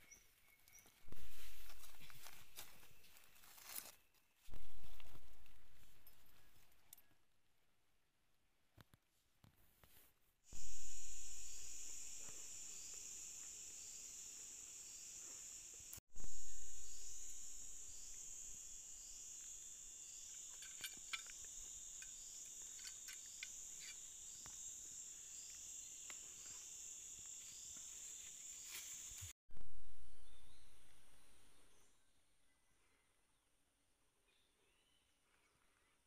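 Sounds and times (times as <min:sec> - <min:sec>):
insects buzzing: 0:10.5 - 0:29.3.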